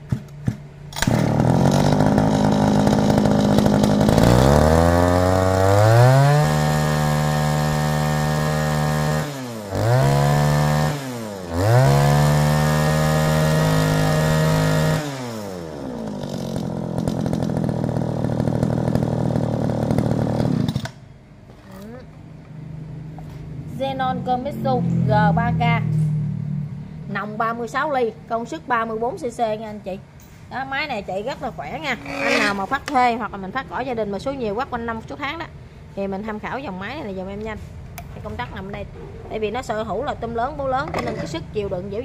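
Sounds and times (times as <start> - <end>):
brush cutter engine revving: 0.9 - 21.0, 31.9 - 33.0.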